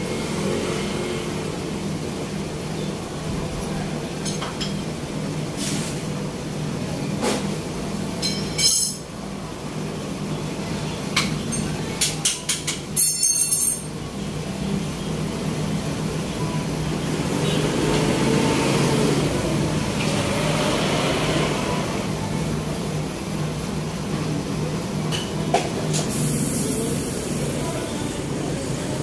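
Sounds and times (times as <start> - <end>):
motorcycle passing: 0.0 - 1.8, 17.1 - 22.1
cars passing: 0.0 - 3.2, 16.8 - 22.8.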